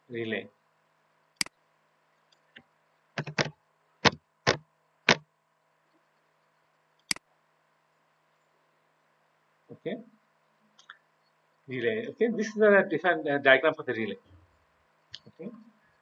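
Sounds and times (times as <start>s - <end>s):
keyboard keys clicking: 3.2s - 5.2s.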